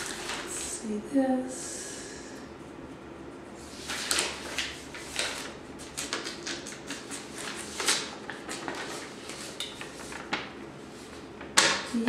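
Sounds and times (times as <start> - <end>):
paper packaging crinkling: 0.0 - 0.8, 3.7 - 12.0.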